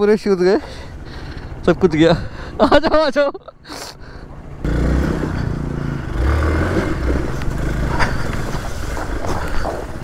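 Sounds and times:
motorcycle engine running at low revs: 4.6 - 10.0.

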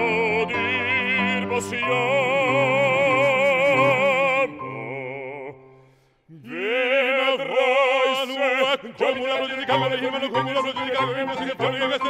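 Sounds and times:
piano accompaniment: 0.0 - 5.1
male opera voices singing: 0.0 - 5.7, 6.3 - 12.0.

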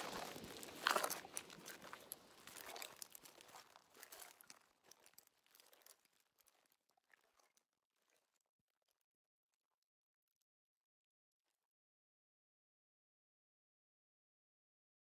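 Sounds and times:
footsteps crunching through stubble: 0.0 - 7.4.

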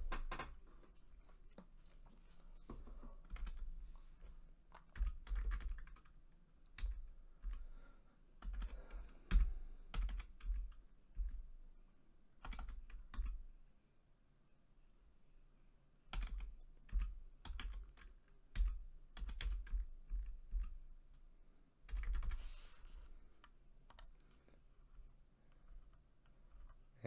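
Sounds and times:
typing on computer keyboard: 0.0 - 0.6, 3.2 - 3.7, 4.7 - 7.7, 8.4 - 11.4, 12.4 - 13.4, 16.0 - 20.8, 21.9 - 22.4.

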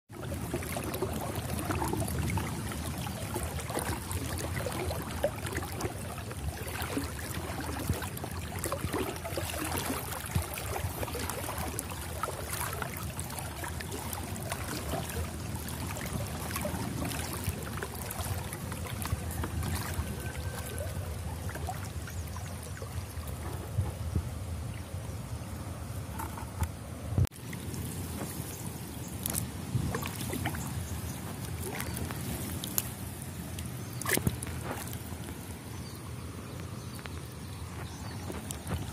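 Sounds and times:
water sloshing and splashing: 0.1 - 38.9.

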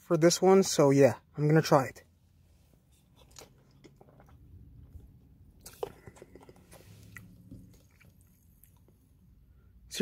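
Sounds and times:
swallowing: 3.2 - 9.0.

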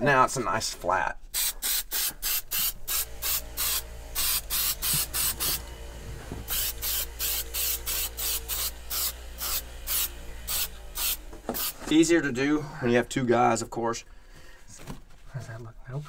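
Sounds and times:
aerosol spray bursts: 1.3 - 5.6, 6.5 - 11.8.

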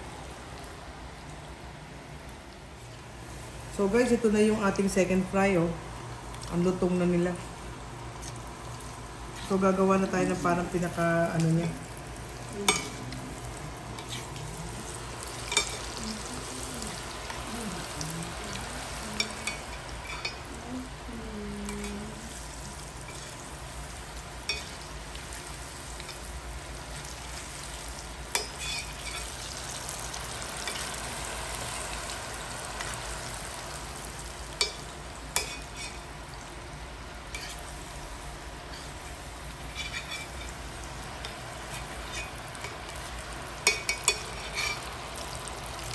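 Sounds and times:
meat sizzling in hot oil: 22.2 - 45.9
wire skimmer clinking on pan: 43.6 - 44.8.

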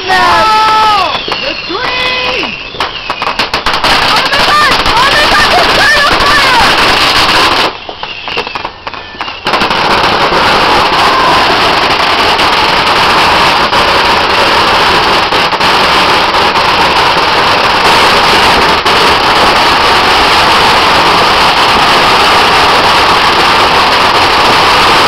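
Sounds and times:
fire roaring: 3.4 - 7.8, 9.5 - 25.0.

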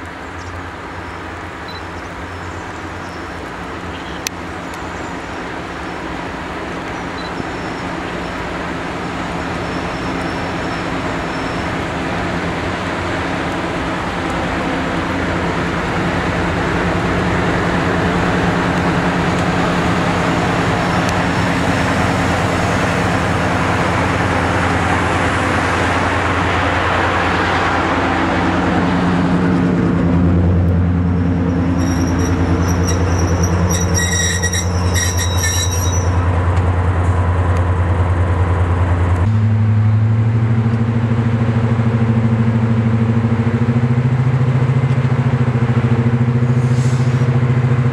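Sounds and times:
diesel locomotive engines: 0.0 - 47.9
train squeal: 9.5 - 11.8, 31.2 - 36.4.

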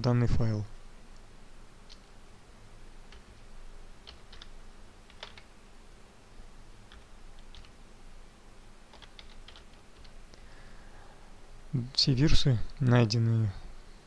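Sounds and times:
keyboard typing clicks: 4.0 - 5.5, 6.9 - 7.8, 8.9 - 10.2.

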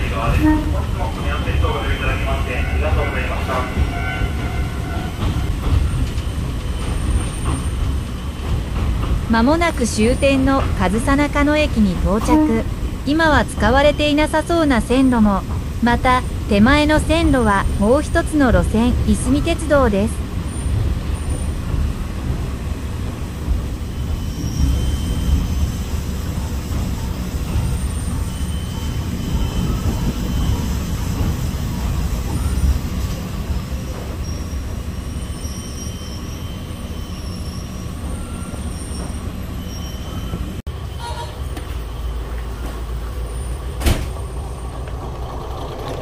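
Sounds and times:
railcar engine and running rumble: 0.0 - 46.0
wheels squealing: 0.2 - 9.1, 20.4 - 46.0.

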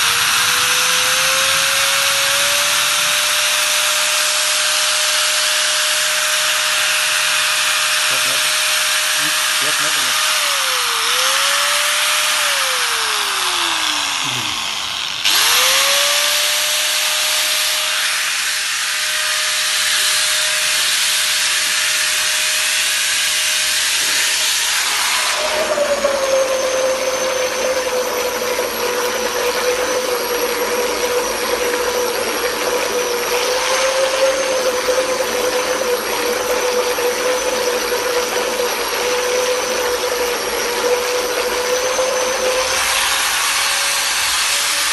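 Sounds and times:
power tool motor whining: 0.0 - 44.9
water churning and splashing: 24.2 - 44.9.

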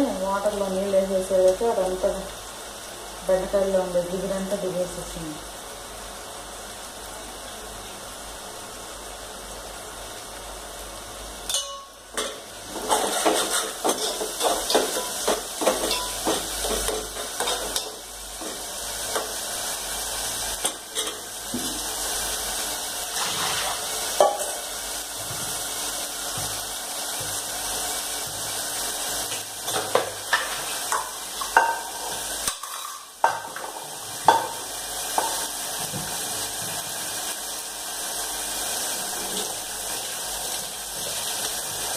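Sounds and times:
steel utensils clattering: 11.5 - 18.0, 32.5 - 33.1.

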